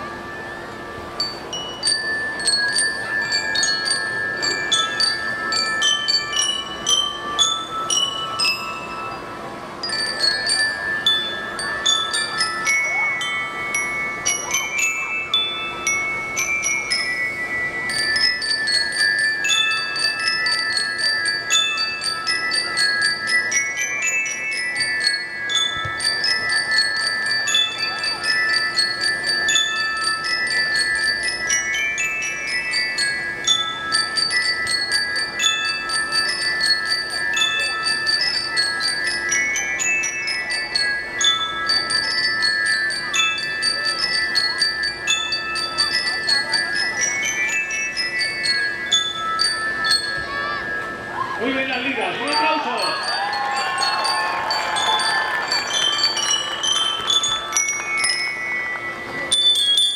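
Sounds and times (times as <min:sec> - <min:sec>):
bell lyres playing fast runs: 0:00.0 - 0:59.9.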